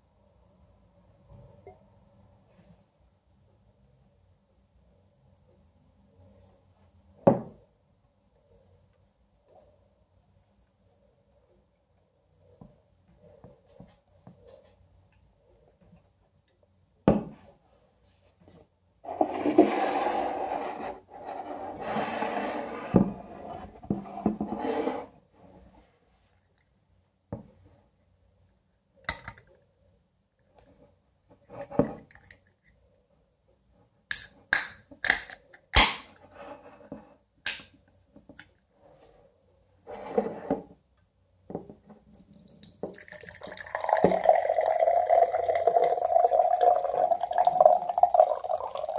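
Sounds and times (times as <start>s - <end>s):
scraping and rubbing on table: 18.0s - 25.9s, 39.8s - 40.8s.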